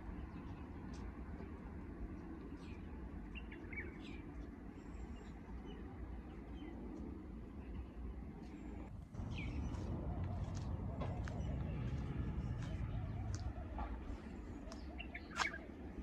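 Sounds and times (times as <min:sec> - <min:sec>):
distant city traffic rumble: 0:00.0 - 0:16.0
small birds chirping: 0:02.2 - 0:07.0, 0:09.1 - 0:15.9.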